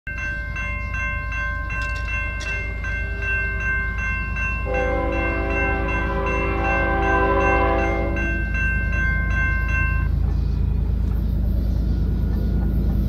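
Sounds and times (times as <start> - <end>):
level crossing warning bells ringing: 0.1 - 13.0
train horn chord: 4.6 - 8.7.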